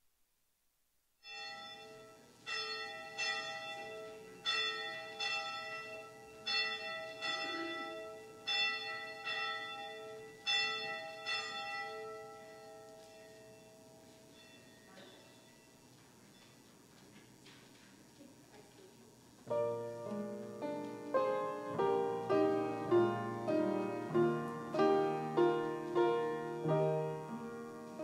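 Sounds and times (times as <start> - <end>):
church bell tolling: 1.2 - 15.8.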